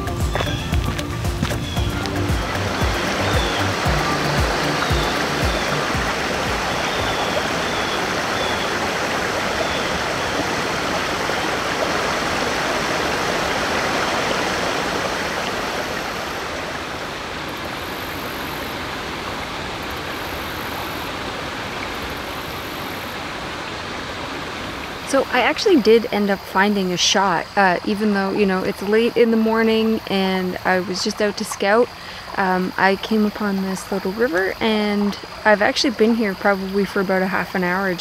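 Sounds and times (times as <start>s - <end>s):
river flowing over rocks: 0.0s - 25.7s.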